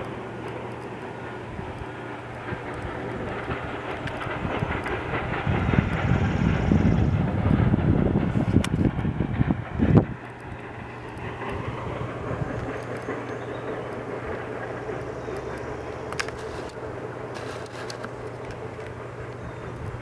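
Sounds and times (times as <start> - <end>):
steady low hum: 0.0 - 20.0
wind buffeting microphone: 0.0 - 20.0.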